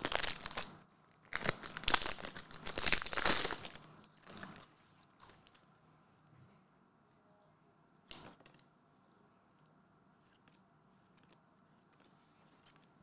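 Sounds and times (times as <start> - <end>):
trading cards handled and flipped: 8.1 - 8.7, 10.2 - 13.0.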